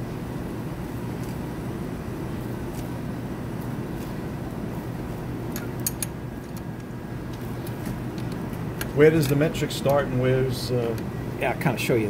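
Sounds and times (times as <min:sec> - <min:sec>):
low machinery hum and hiss: 0:00.0 - 0:12.0
light handling clicks: 0:05.5 - 0:10.1.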